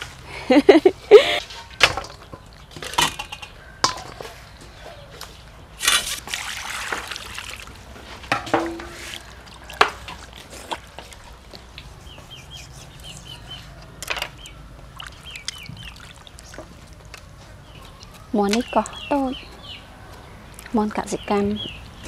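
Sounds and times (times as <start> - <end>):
water splashing in a steel basin: 5.8 - 11.3, 14.8 - 17.0.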